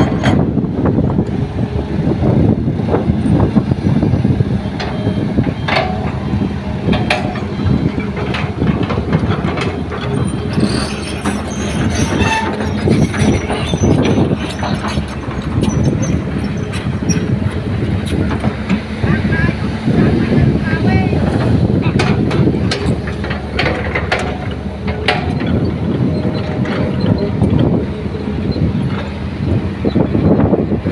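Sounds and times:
diesel engines running under load: 0.0s - 30.9s
soil clanking into steel truck bed: 4.8s - 17.2s, 21.8s - 27.8s.

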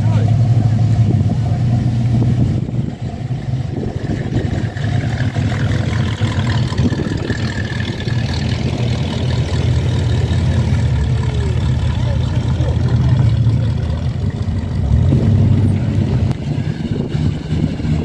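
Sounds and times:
pickup truck engine passing: 0.0s - 18.0s.

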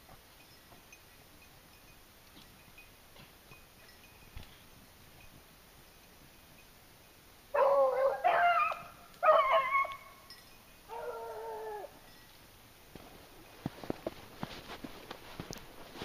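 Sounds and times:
dogs baying: 7.6s - 10.0s, 10.9s - 12.0s.

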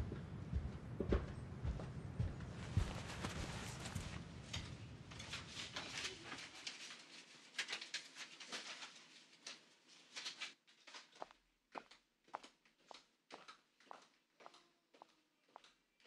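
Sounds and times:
woman's footsteps on a floor: 0.0s - 4.7s.

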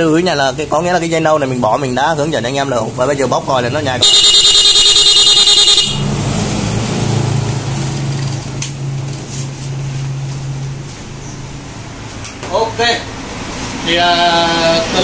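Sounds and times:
motorcycle horn rapid beeps: 4.0s - 6.2s.

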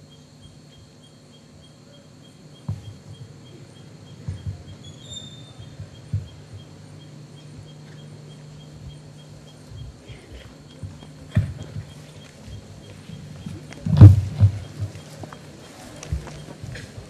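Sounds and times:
low electrical hum: 0.0s - 17.0s
dull knocks: 4.2s - 4.8s, 5.6s - 6.7s, 10.8s - 12.7s, 13.6s - 15.4s.

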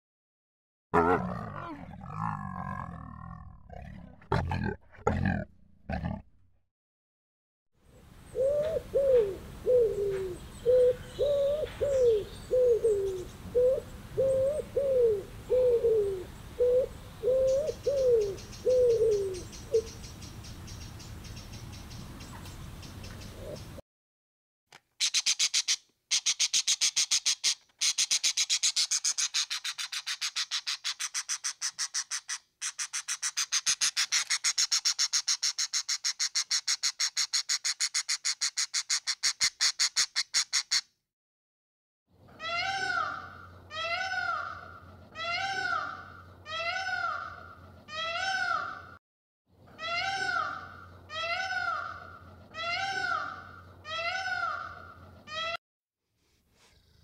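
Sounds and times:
peacock calling: 8.4s - 20.1s, 25.0s - 40.8s, 42.4s - 48.9s, 49.8s - 55.6s.

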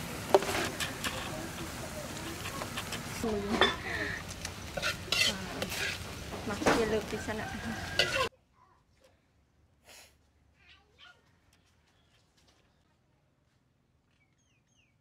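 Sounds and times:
utensils clinking on metal: 0.3s - 8.3s.

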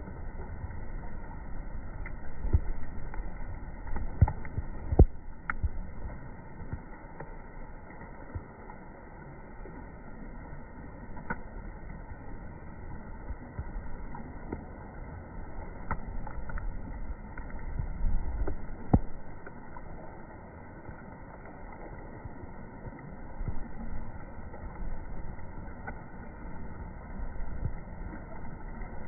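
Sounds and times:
flowing river water: 0.0s - 29.0s
low rumble: 0.0s - 29.0s.

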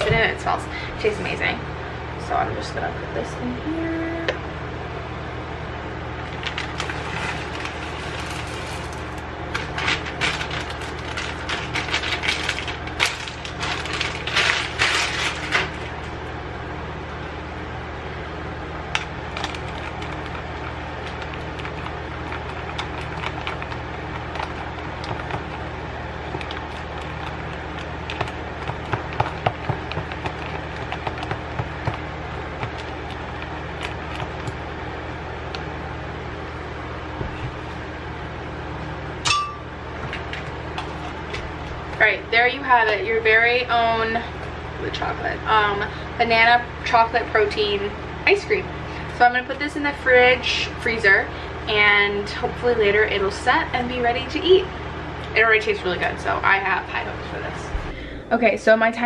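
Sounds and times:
plastic bag crinkling: 6.2s - 16.2s, 19.2s - 34.6s.

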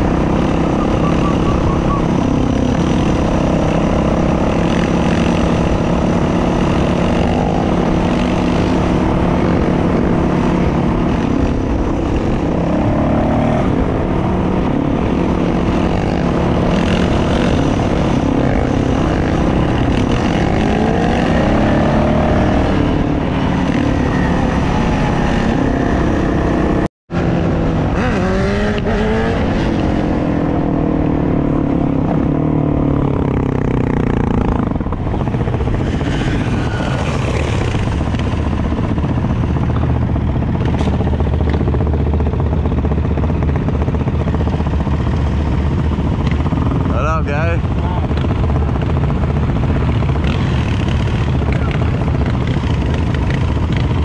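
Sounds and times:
dirt bike engines: 0.0s - 54.0s
wind and road noise: 0.0s - 54.0s.

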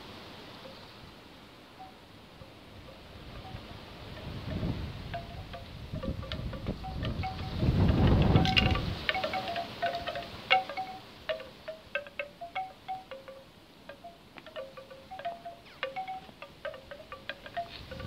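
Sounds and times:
bamboo wind chime knocking: 1.8s - 18.0s
wind rumbling on microphone: 2.6s - 11.0s, 15.2s - 18.0s.

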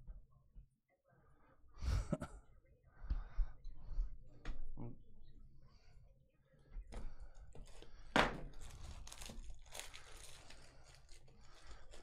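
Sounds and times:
plastic wrap crinkling and tearing: 7.6s - 12.0s.

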